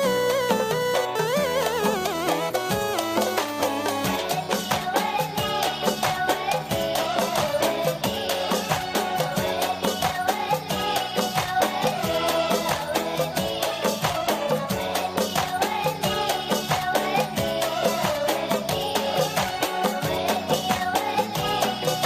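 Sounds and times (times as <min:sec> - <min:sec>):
wavering melody over quick beat: 0:00.0 - 0:05.8.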